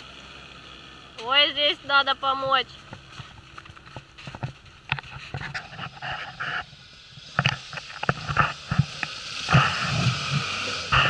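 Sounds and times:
footsteps crunching in snow: 0:02.9 - 0:11.0.

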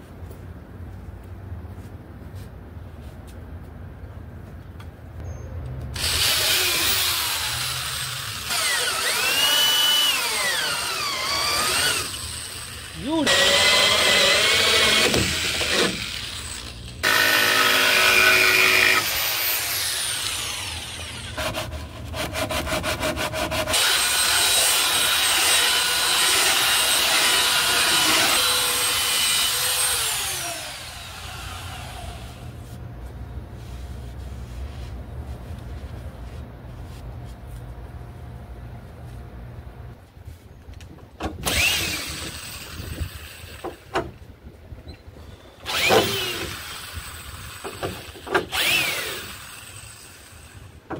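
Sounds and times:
electric trimming tool whining: 0:06.0 - 0:21.4, 0:23.7 - 0:32.5, 0:41.4 - 0:43.9, 0:45.6 - 0:50.7
drill with hole saw cutting plywood: 0:06.0 - 0:32.6, 0:41.4 - 0:44.1, 0:45.6 - 0:50.7.

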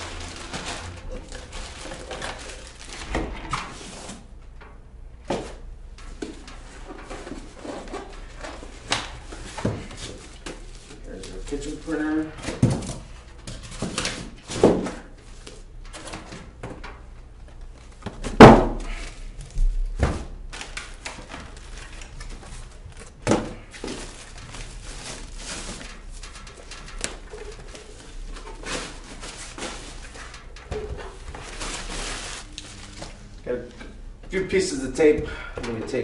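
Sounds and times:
plastic bag rustling: 0:00.0 - 0:04.3, 0:20.5 - 0:33.6.

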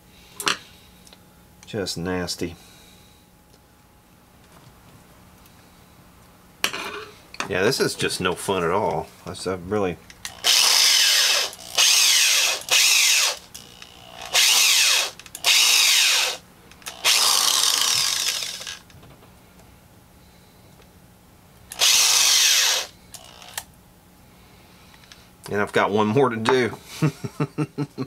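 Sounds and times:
drill grinding and scraping: 0:10.3 - 0:18.9, 0:21.7 - 0:23.6.

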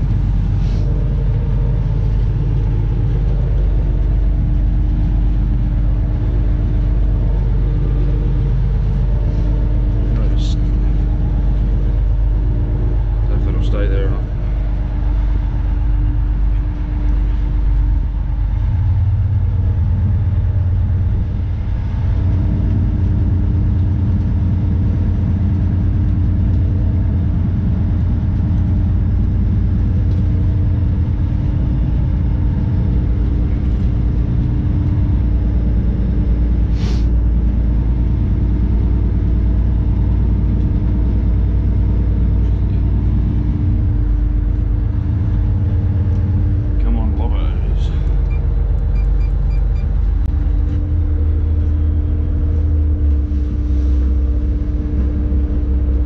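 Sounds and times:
boat engine drone: 0:00.0 - 0:56.0
brief hiss: 0:36.8 - 0:37.1.

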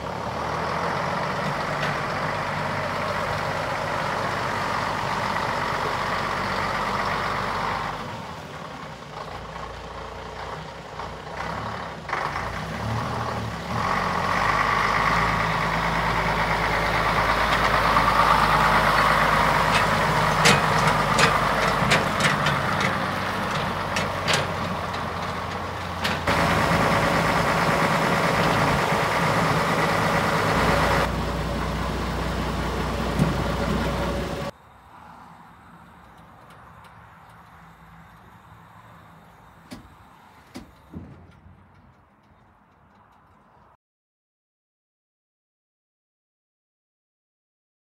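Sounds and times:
truck diesel engine running: 0:00.0 - 0:34.6.

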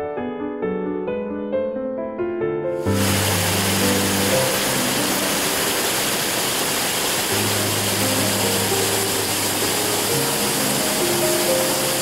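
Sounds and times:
soft music of long held notes: 0:00.0 - 0:12.0
stream rushing over rocks: 0:02.9 - 0:12.0.

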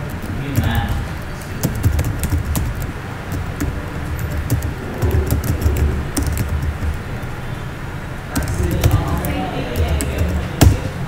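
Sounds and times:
low background rumble: 0:00.0 - 0:10.5.

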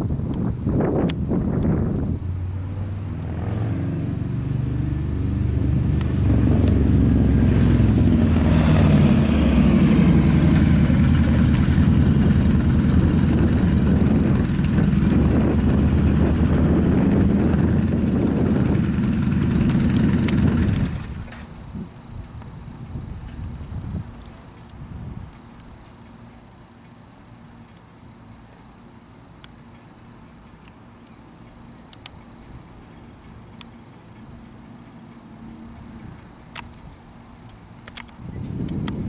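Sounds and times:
jet airliner climbing past: 0:00.8 - 0:21.9.

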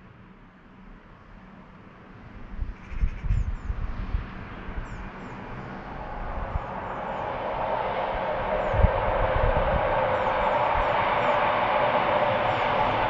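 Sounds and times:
wind buffeting microphone: 0:02.5 - 0:13.0
approaching train rushing: 0:03.2 - 0:13.0.

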